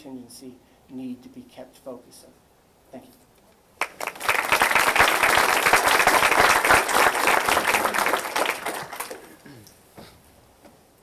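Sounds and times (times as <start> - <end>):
audience applauding: 3.8 - 9.5.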